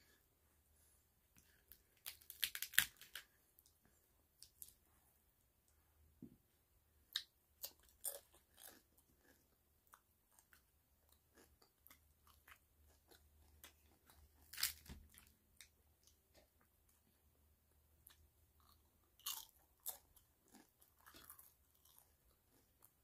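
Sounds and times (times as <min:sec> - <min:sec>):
chewing crisp tortilla shell: 0:01.4 - 0:03.7, 0:07.1 - 0:16.5, 0:18.0 - 0:23.0.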